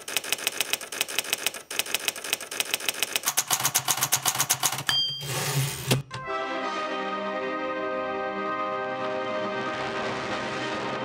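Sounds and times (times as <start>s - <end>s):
typewriter key clatter: 0.0s - 5.0s
high typewriter ding: 3.3s - 6.2s.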